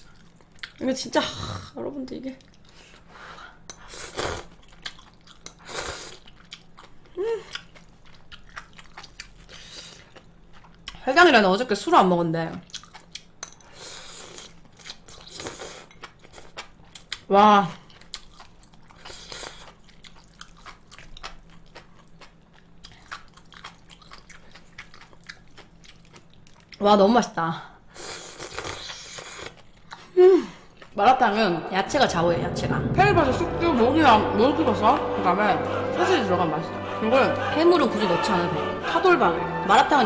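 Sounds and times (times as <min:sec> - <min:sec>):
close chewing of noodles: 0:03.8 - 0:11.0, 0:12.6 - 0:26.9, 0:27.9 - 0:31.0.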